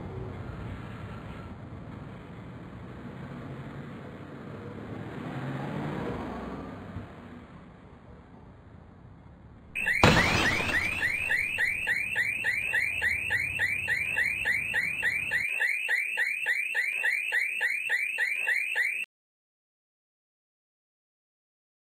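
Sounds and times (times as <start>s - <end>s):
loud impact: 9.8s - 11.9s
car alarm chirping: 9.8s - 19.1s.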